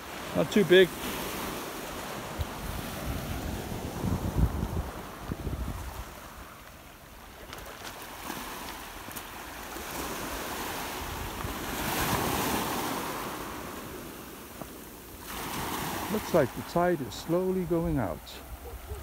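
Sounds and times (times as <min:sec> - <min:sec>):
small waves on pebble shore: 0:00.0 - 0:19.0
wind buffeting microphone: 0:01.4 - 0:06.5, 0:15.2 - 0:19.0.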